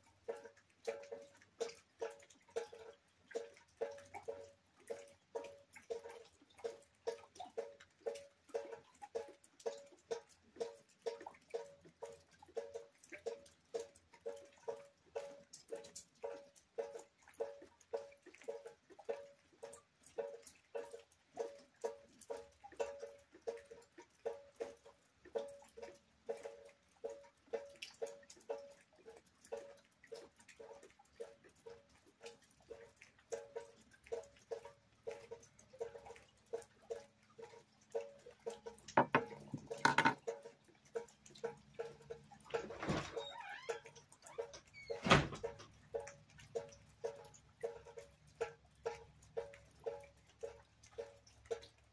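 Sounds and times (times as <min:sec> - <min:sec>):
water dripping into a bucket: 0:00.0 - 0:51.9
sharp knocks: 0:39.0 - 0:40.2.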